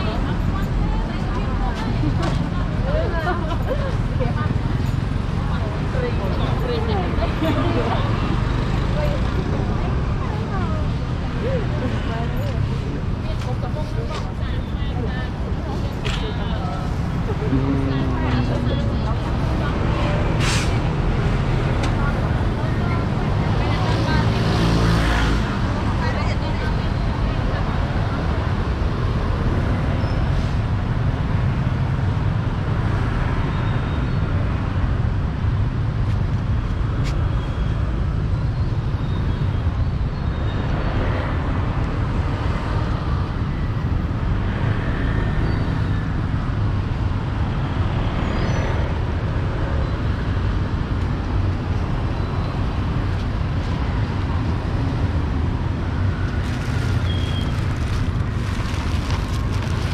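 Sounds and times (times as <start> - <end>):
street traffic rumble: 0.0 - 59.9.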